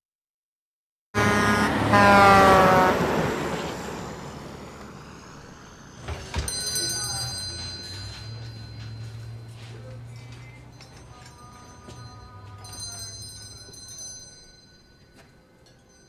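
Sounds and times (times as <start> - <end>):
truck engine passing: 1.2 - 13.7
small bell ringing: 6.2 - 16.0.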